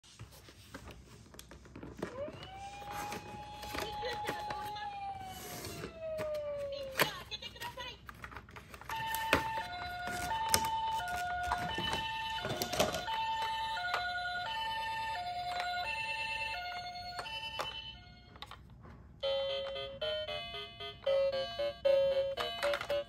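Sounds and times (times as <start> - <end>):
plastic packaging crackling: 5.8 - 14.1
toy siren two-note pattern: 8.9 - 18.4, 19.2 - 23.0.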